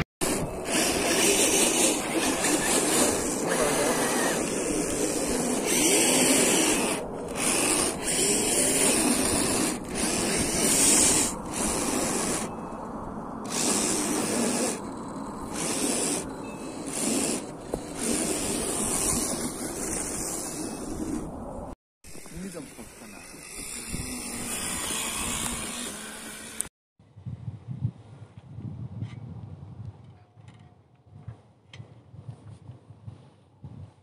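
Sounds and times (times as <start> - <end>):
tyres digging through snow: 0.2 - 12.5, 13.5 - 26.7
electric motor whining: 0.2 - 12.7, 13.4 - 21.5, 22.1 - 26.7.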